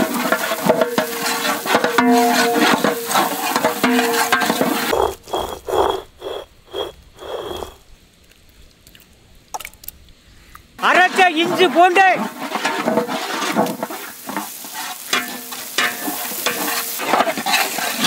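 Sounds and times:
chillies sizzling in hot oil: 0.0s - 4.9s, 11.8s - 18.0s
swishing strokes: 4.9s - 7.8s.

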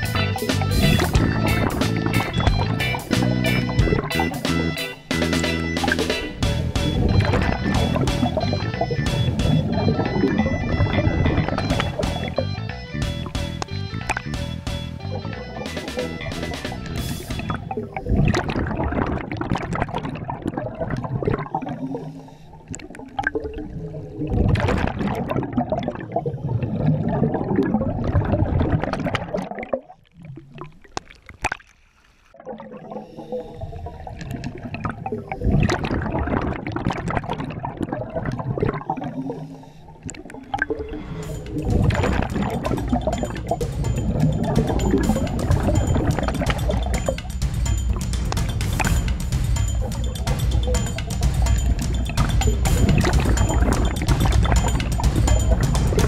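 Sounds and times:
exhaled air bubbling underwater: 0.0s - 4.4s, 6.2s - 14.4s, 15.0s - 56.0s.

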